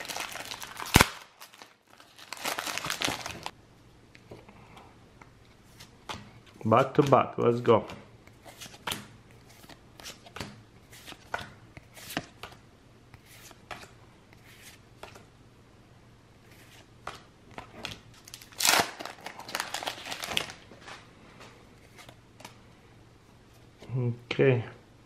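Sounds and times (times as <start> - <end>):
foil wrappers crinkling: 0.0 - 3.5, 18.2 - 21.0.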